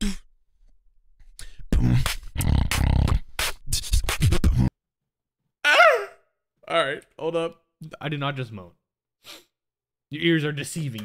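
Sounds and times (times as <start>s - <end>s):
human beatboxing: 1.4s - 4.7s.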